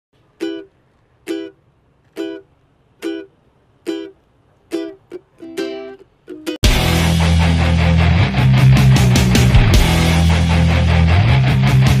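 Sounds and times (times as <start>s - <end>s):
plucked string music: 0.2s - 12.0s.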